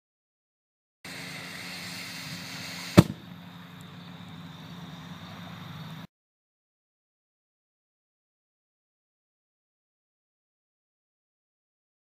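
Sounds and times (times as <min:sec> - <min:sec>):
outdoor background noise: 0:01.0 - 0:06.1
flash powder bang: 0:01.6 - 0:03.3.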